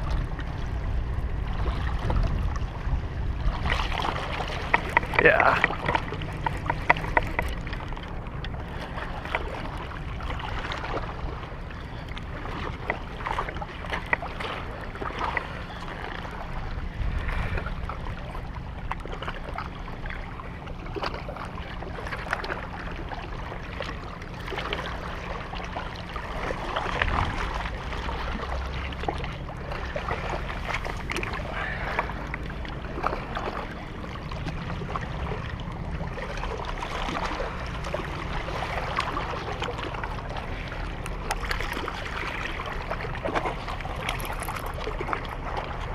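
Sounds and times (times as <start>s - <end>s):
wind buffeting microphone: 0.0s - 11.4s, 26.5s - 28.4s
waves lapping against rocks: 0.0s - 45.9s.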